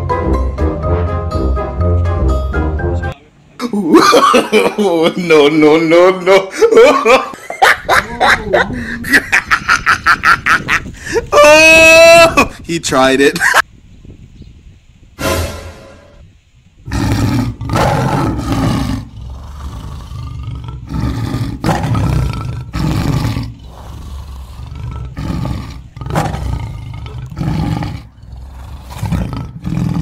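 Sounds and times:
tiger roars and growls: 16.9s - 30.0s.

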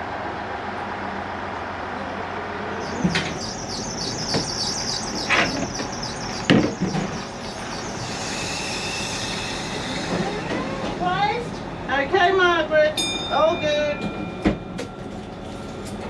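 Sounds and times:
diesel railcar idling hum: 0.0s - 16.0s
rapid high chirping: 2.8s - 9.8s.

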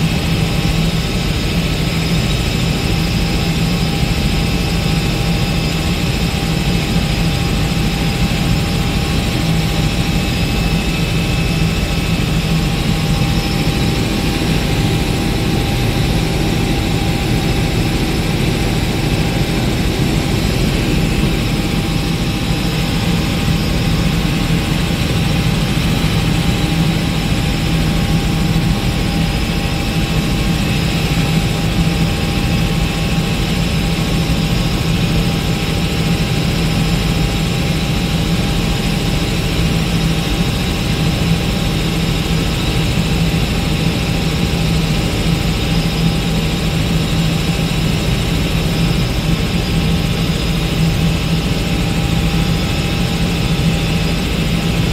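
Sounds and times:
faint steady whine: 0.0s - 35.1s
helicopter rotor and turbine drone: 0.0s - 54.9s.

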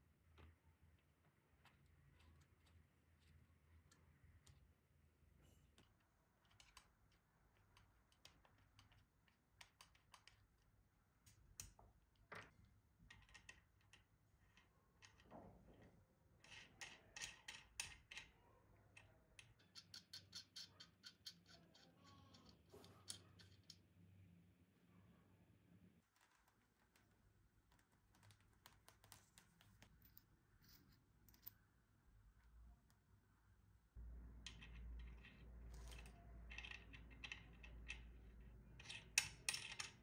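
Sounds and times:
small clicks and taps: 5.7s - 15.8s.

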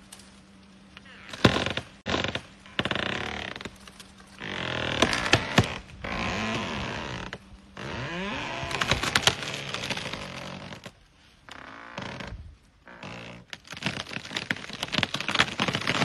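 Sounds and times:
tree creaking and cracking: 0.0s - 16.0s
sharp wood snaps: 8.7s - 10.5s.

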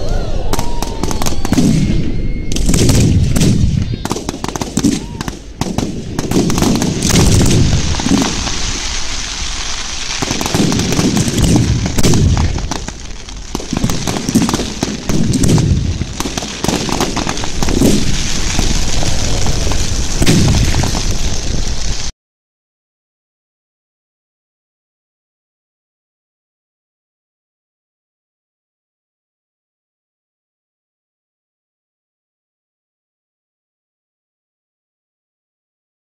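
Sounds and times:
deep fireworks booms: 0.0s - 22.1s
fireworks bangs and pops: 0.5s - 22.1s.

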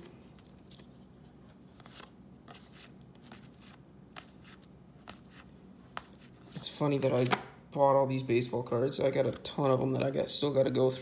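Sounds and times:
cards being flipped through: 0.0s - 7.5s.

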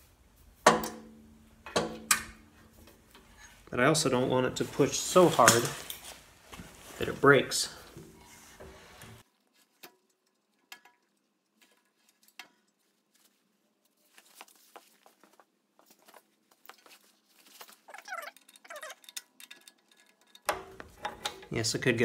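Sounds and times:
squeaky scrapes: 17.5s - 19.1s
metal parts and tools clicking: 17.8s - 21.6s.

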